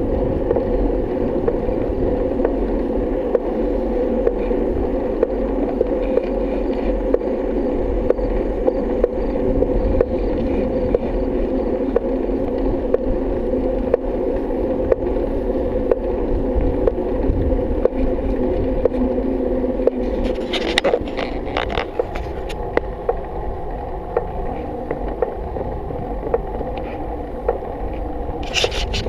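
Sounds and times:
bicycle rolling on asphalt: 0.0 - 29.0
rattling and scraping: 19.9 - 22.8, 28.4 - 29.0.

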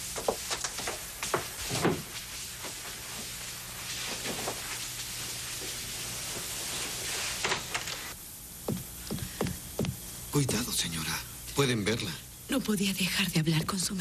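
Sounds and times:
fabric rustling: 0.1 - 8.1.

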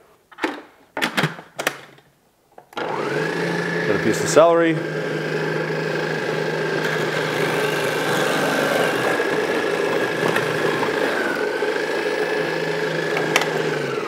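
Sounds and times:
blender motor whining: 2.8 - 14.0.

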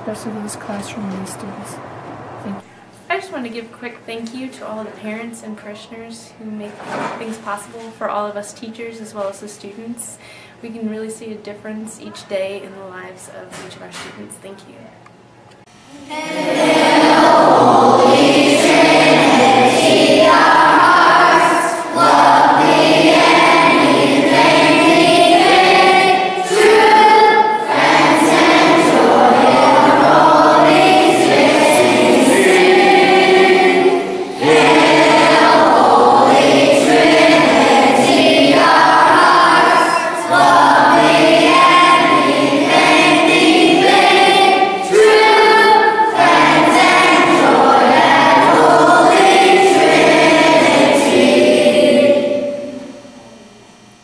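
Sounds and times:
choir singing: 15.9 - 53.2.

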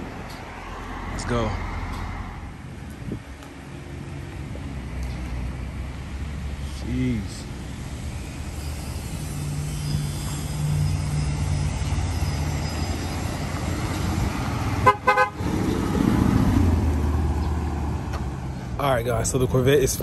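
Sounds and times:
car horn tooting: 14.8 - 15.4.

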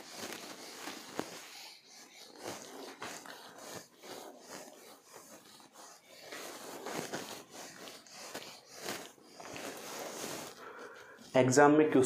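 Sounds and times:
duster rubbing on whiteboard: 0.0 - 11.6.

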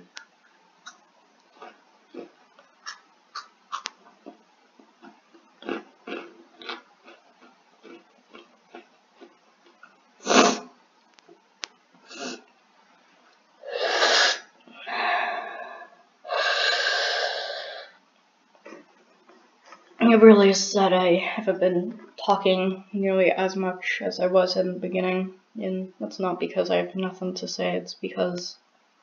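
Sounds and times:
person chewing crunchy snacks: 0.8 - 10.0
person sneezing: 10.2 - 10.7.

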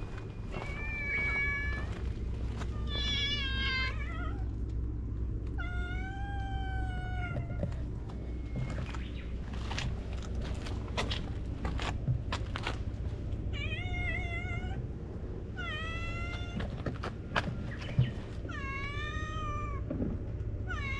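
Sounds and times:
cat meowing: 0.6 - 2.0, 2.7 - 4.5, 5.6 - 7.8, 15.6 - 16.8, 18.5 - 19.8.

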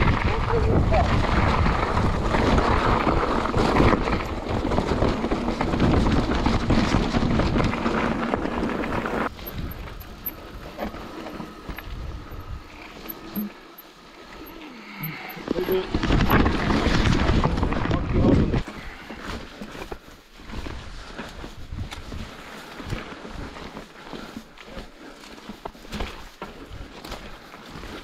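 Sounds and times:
wind buffeting microphone: 0.0 - 12.7
bike rattling: 0.0 - 28.0.

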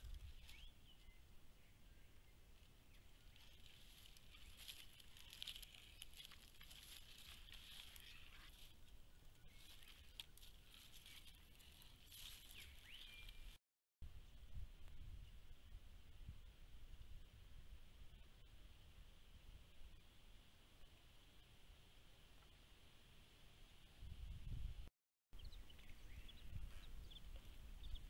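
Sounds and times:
light rustling: 3.2 - 8.8.

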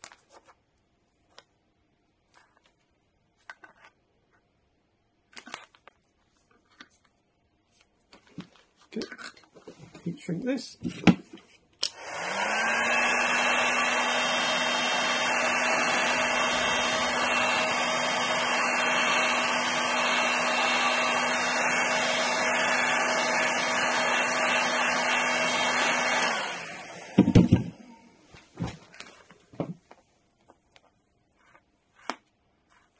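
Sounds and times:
heat gun fan humming: 11.8 - 28.2.

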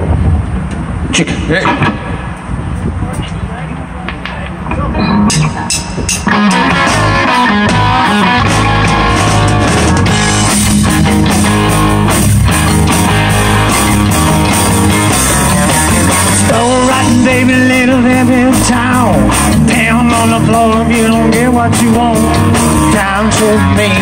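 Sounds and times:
drums: 0.0 - 24.0
electric guitar: 1.5 - 2.5, 4.1 - 24.0
person singing: 16.4 - 24.0.

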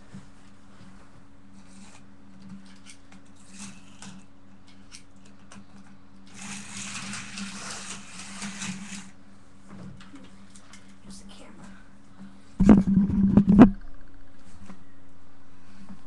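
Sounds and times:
steady low hum: 0.0 - 16.0
slot car motor whirring: 6.3 - 9.2.

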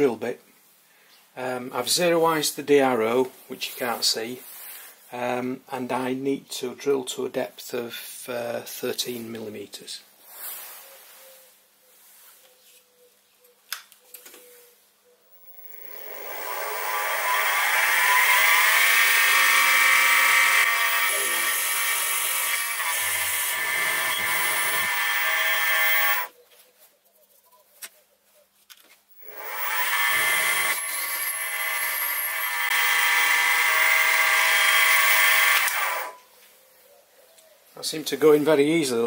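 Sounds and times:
milling machine drilling metal: 15.4 - 26.3, 29.2 - 36.2.

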